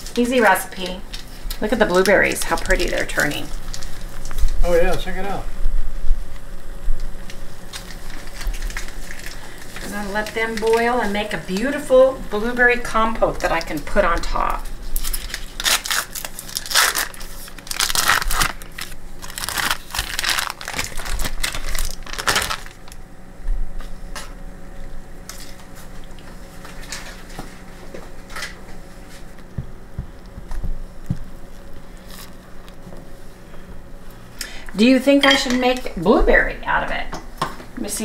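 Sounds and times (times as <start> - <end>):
wrapper crinkling and tearing: 0.8 - 4.7, 7.3 - 10.8, 13.4 - 23.0, 31.4 - 32.8.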